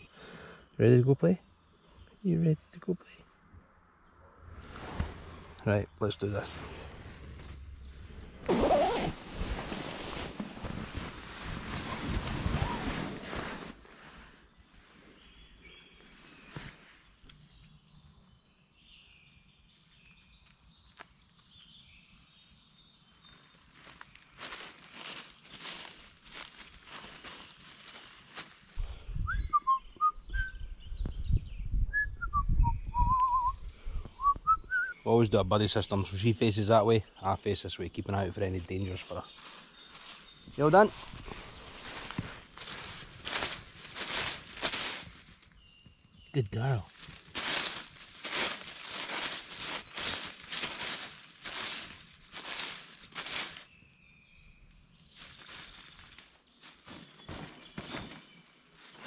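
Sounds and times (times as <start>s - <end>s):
dry leaves crunching under paws: 8.5s - 14.0s, 23.2s - 28.8s, 38.9s - 45.6s, 46.4s - 54.1s, 55.0s - 57.9s
man whistling a tune: 29.1s - 30.6s, 31.9s - 35.0s
wind buffeting microphone: 30.2s - 34.2s.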